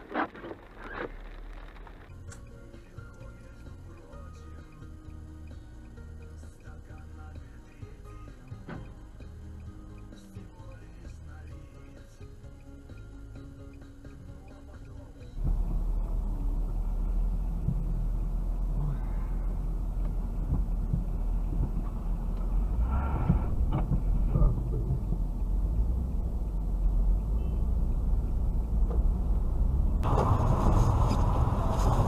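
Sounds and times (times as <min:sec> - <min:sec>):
car engine rumble: 0:00.0 - 0:03.3, 0:12.4 - 0:32.0
road noise: 0:00.0 - 0:04.2, 0:05.8 - 0:32.0.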